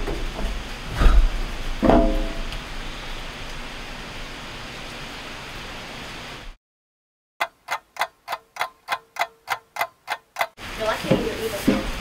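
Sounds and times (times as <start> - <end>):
clock ticking: 7.4 - 10.6.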